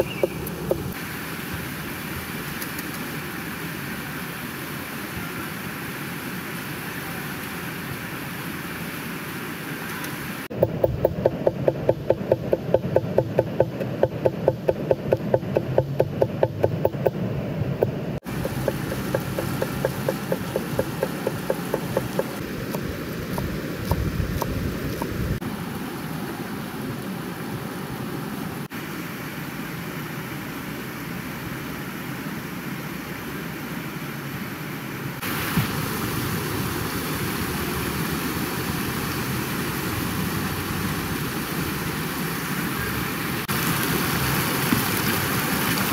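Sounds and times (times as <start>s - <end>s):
fast mountain river rushing: 18.2s - 34.4s, 35.1s - 45.9s.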